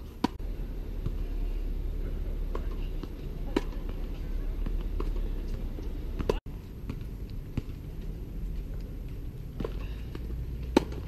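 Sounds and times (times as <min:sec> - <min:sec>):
racket hitting tennis ball: 0:00.0 - 0:00.4, 0:02.5 - 0:07.7, 0:09.6 - 0:11.0
steady low rumble: 0:00.0 - 0:11.0
ball bounces: 0:02.4 - 0:08.1, 0:08.7 - 0:11.0.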